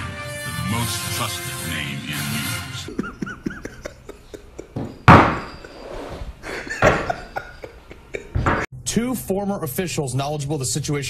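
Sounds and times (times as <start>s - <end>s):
man laughing: 2.8s - 5.0s, 6.4s - 8.6s.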